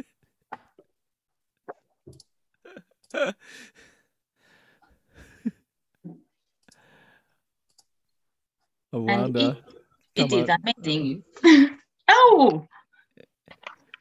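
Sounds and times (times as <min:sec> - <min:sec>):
sighs: 0:02.7 - 0:05.6, 0:06.7 - 0:07.4
voiced sound: 0:09.0 - 0:12.7.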